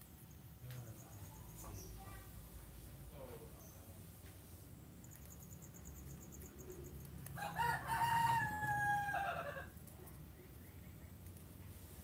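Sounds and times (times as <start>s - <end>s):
rooster crowing: 7.4s - 9.7s.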